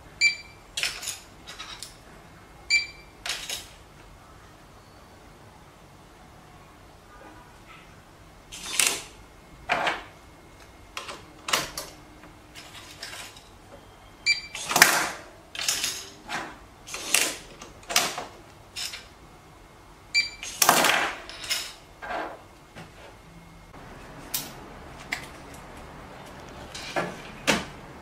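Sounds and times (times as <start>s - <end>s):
short electronic beeps: 2.7s - 3.2s, 13.8s - 14.7s, 20.1s - 20.5s.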